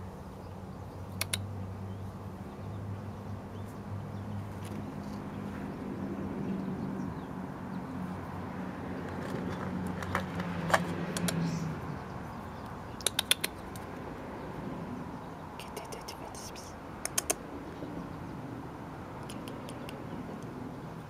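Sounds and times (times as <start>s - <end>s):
vehicle engine hum: 0.0s - 21.0s
sharp taps on concrete: 9.0s - 11.4s, 12.6s - 13.9s, 17.0s - 17.4s.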